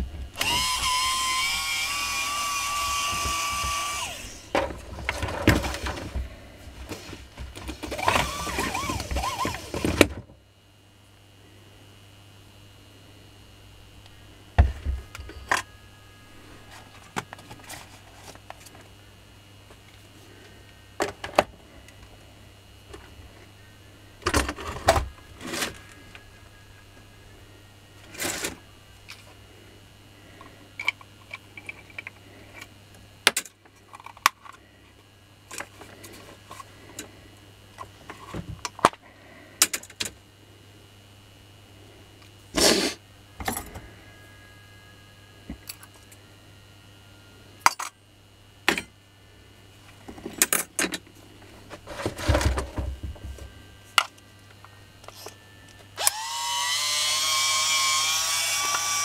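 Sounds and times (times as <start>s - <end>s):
drill parts clicking and rattling: 0.4s - 6.2s, 7.5s - 10.2s
parts clattering: 2.9s - 10.2s.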